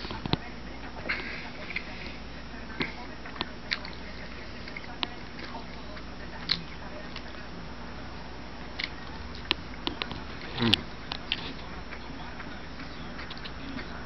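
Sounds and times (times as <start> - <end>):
person chewing with mouth clicks: 8.8 - 13.9.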